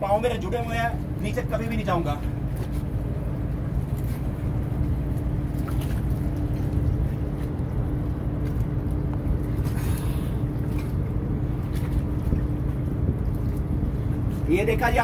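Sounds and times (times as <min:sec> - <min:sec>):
low motor hum: 0:00.0 - 0:15.0.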